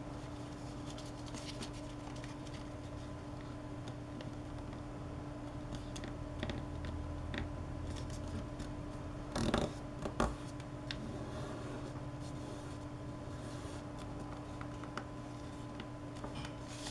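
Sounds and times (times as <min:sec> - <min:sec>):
steady low hum: 0:00.0 - 0:16.9
paper rustling and crinkling: 0:00.4 - 0:03.5, 0:13.7 - 0:16.9.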